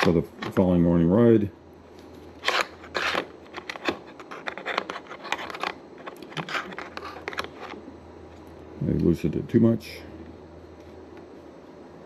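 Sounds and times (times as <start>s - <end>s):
tablet clicking and scraping in bracket: 2.4s - 7.8s.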